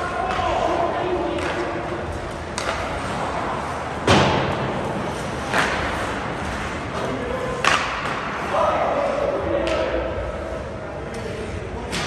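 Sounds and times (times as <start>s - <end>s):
din of the rink: 0.0s - 12.0s
hockey sticks and puck knocking: 0.1s - 8.5s.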